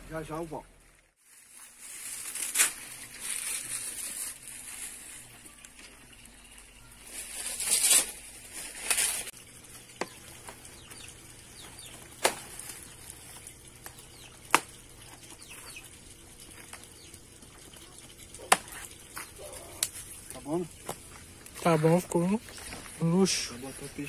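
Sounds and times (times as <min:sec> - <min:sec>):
banana leaves rustling: 0:01.1 - 0:06.1, 0:07.0 - 0:15.2, 0:18.4 - 0:24.0
leaves snapping off: 0:01.8 - 0:04.2.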